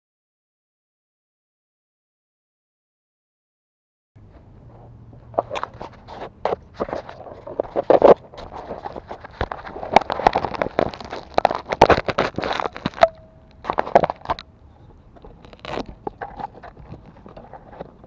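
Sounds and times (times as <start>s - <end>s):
footsteps crunching on asphalt: 4.2s - 18.0s.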